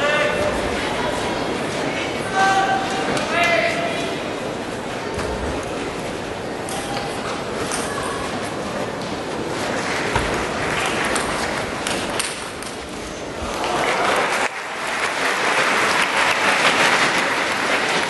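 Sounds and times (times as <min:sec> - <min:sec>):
crowd applauding: 0:09.6 - 0:12.0, 0:13.4 - 0:18.0.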